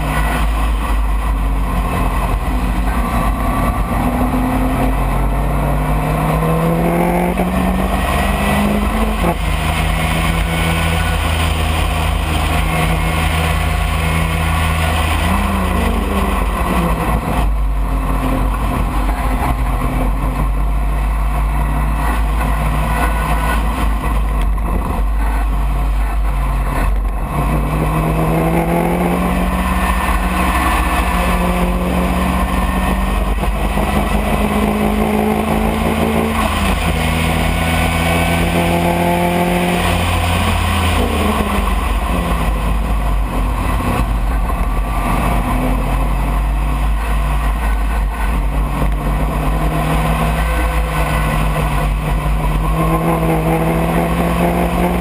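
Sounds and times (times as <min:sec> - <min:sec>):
racing car engine revving: 0:00.0 - 0:55.0
low wind rumble: 0:23.6 - 0:55.0.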